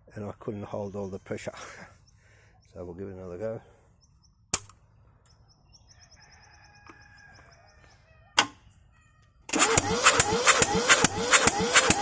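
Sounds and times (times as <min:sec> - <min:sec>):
diesel engine cranking: 0:09.5 - 0:12.0.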